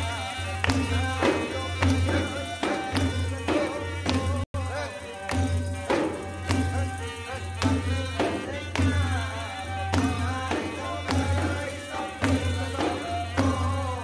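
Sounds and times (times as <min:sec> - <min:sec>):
drum or tambourine strikes: 0:00.0 - 0:14.0.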